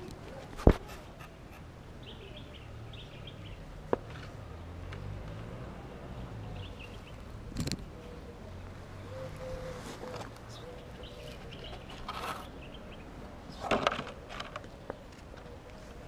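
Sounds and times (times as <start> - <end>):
birds chirping: 1.2 - 3.9, 6.0 - 14.0.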